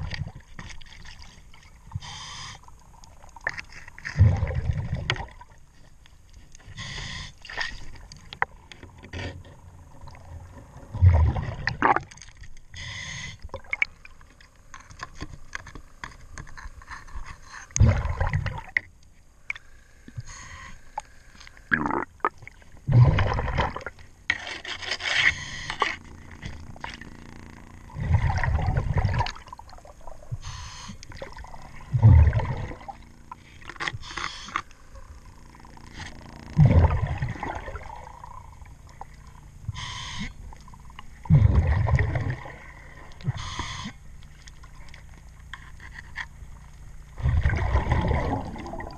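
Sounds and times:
exhale bubbles rumbling: 0:01.8 - 0:05.6, 0:09.6 - 0:12.2, 0:17.8 - 0:18.8, 0:21.7 - 0:24.0, 0:26.0 - 0:44.1, 0:47.1 - 0:48.9
regulator inhale hiss: 0:02.0 - 0:02.7, 0:06.7 - 0:07.5, 0:12.8 - 0:13.4, 0:19.7 - 0:21.5, 0:30.4 - 0:31.1, 0:34.0 - 0:34.7, 0:39.7 - 0:40.4, 0:43.3 - 0:44.0
hand scraper scraping hull: 0:24.3 - 0:26.0.

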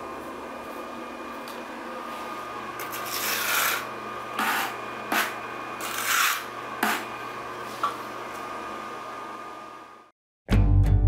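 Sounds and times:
trowel scraping mortar on floor: 0:02.8 - 0:07.1.

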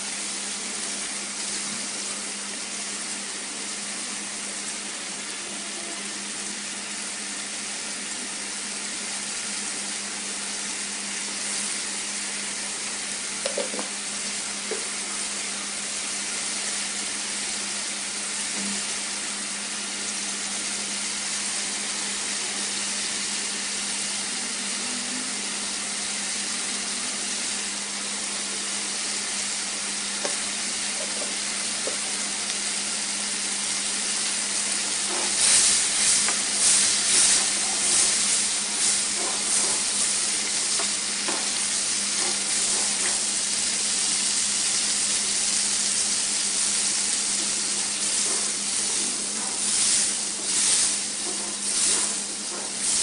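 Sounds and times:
onions sizzling in hot oil: 0:00.0 - 0:53.0.

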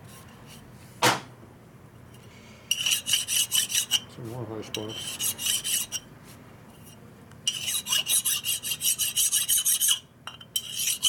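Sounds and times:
hand file rasping on metal: 0:02.7 - 0:04.0, 0:04.8 - 0:06.0, 0:07.5 - 0:10.0, 0:10.6 - 0:11.0.

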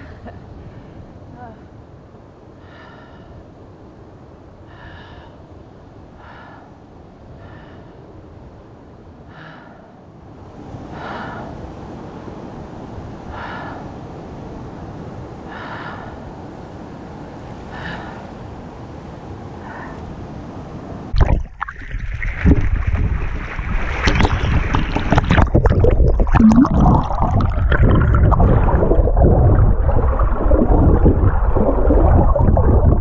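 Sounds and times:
loud breaths close to microphone: 0:02.6 - 0:03.5, 0:04.7 - 0:05.5, 0:06.2 - 0:08.1, 0:09.2 - 0:10.1, 0:10.8 - 0:11.6, 0:13.3 - 0:14.1, 0:15.4 - 0:16.4, 0:17.6 - 0:18.6, 0:19.5 - 0:20.5
small waves lapping sand: 0:10.3 - 0:21.2, 0:22.2 - 0:25.3.

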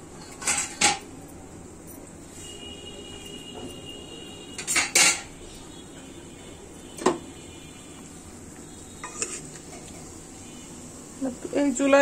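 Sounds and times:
metal cookware clanking: 0:00.1 - 0:01.2, 0:04.6 - 0:05.4, 0:09.0 - 0:10.0.

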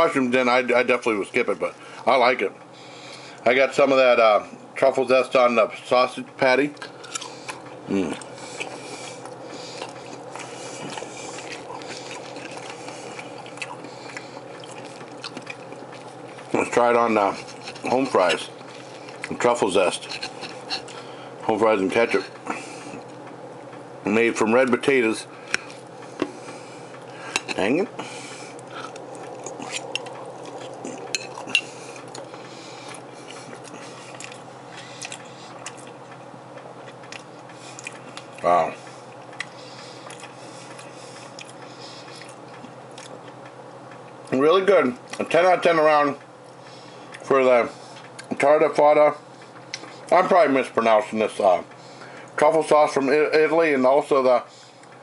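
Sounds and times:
low background hum: 0:00.0 - 0:55.0
person chewing with wet mouth clicks: 0:06.8 - 0:16.5, 0:28.5 - 0:36.2, 0:36.8 - 0:38.4, 0:39.1 - 0:44.3, 0:49.6 - 0:49.9
fork clinking and scraping on plate: 0:31.1 - 0:31.8.

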